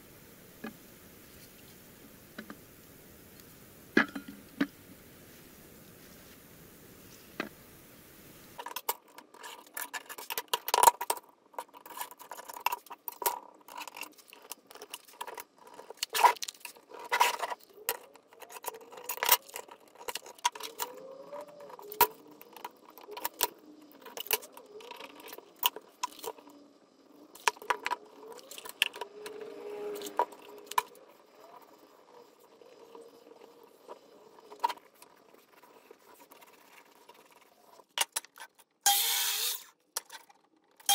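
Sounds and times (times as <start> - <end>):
wood pieces clicking and scraping: 8.6 - 26.5.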